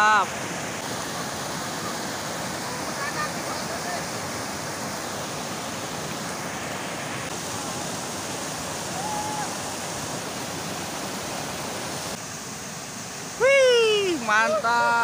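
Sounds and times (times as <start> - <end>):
river rushing over rocks: 0.0 - 15.0.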